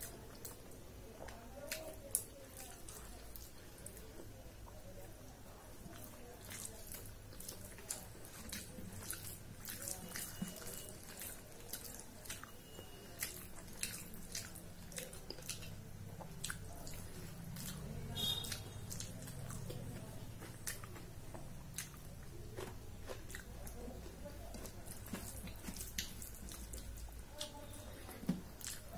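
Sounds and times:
mouth chewing wet smacks: 0:05.8 - 0:28.9.

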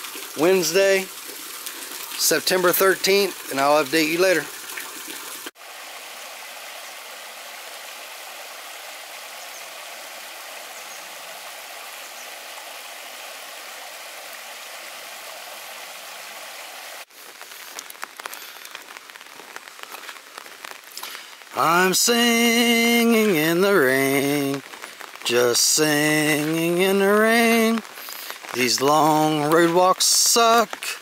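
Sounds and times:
raindrops ticking: 0:00.0 - 0:05.5, 0:17.1 - 0:31.0
rain falling: 0:00.0 - 0:31.0
stream splashing over rocks: 0:00.0 - 0:31.0.

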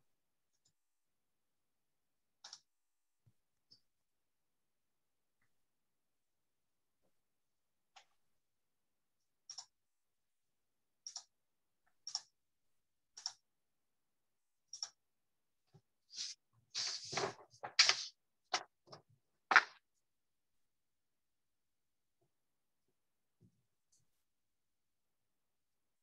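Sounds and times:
computer mouse clicks: 0:02.4 - 0:02.7, 0:09.4 - 0:09.8, 0:11.0 - 0:11.3, 0:12.0 - 0:12.4, 0:13.1 - 0:13.4, 0:14.7 - 0:15.0.

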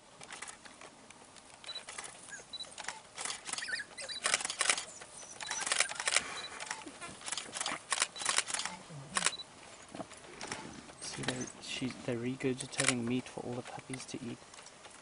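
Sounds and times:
wild dog pups squealing: 0:01.7 - 0:07.9, 0:08.6 - 0:11.6.

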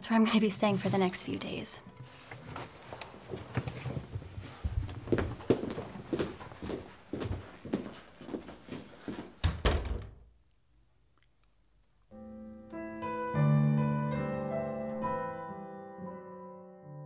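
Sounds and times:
slow piano music: 0:01.8 - 0:02.8, 0:12.1 - 0:17.0
footsteps: 0:01.9 - 0:09.4
door shutting with heavy thud: 0:09.4 - 0:10.2.

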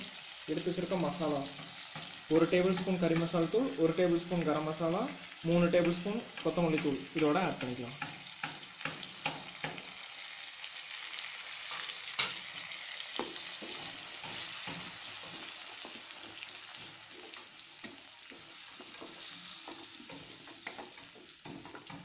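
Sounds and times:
food sizzling in hot oil: 0:00.0 - 0:22.0
wooden spatula scraping a pan: 0:11.6 - 0:22.0.

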